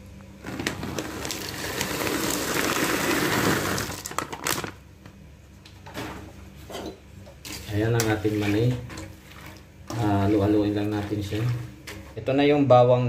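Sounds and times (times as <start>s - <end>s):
peanuts sizzling in hot oil: 1.1s - 4.2s.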